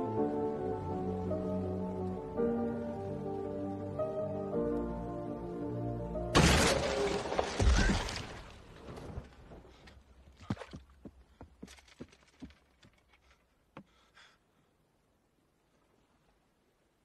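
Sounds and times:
crash: 6.4s - 8.6s.

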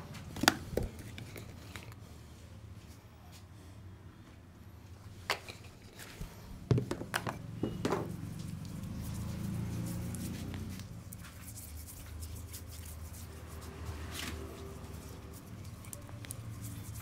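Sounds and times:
brush scrubbing skin: 8.2s - 17.0s.

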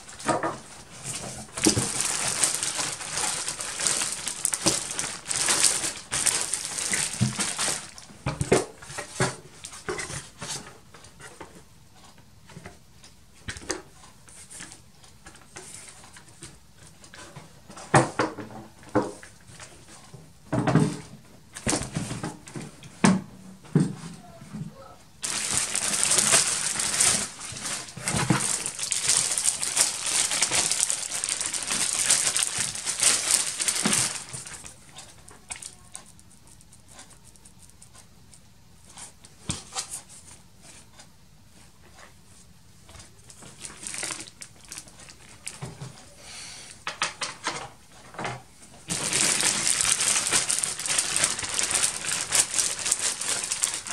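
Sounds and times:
plastic bags crinkling: 0.0s - 10.7s, 25.2s - 36.6s, 43.1s - 46.0s, 48.8s - 53.9s.

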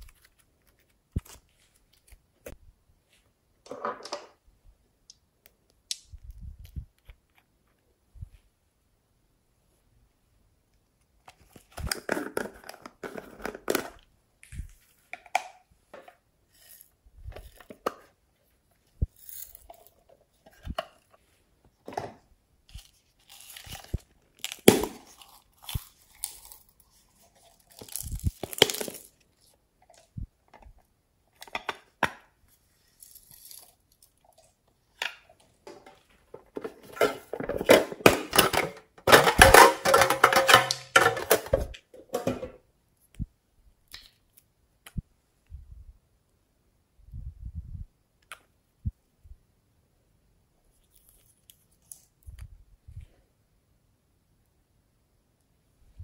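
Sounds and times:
plastic containers clicking: 35.6s - 42.6s.

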